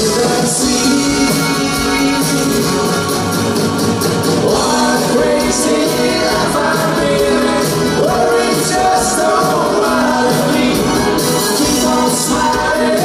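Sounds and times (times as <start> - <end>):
man singing: 0.0 - 3.2, 4.4 - 13.0
live band playing: 0.0 - 13.0.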